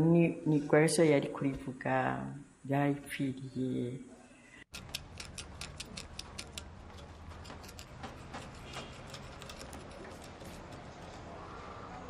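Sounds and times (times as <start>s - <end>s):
rapid ticking clicks: 4.7s - 10.8s.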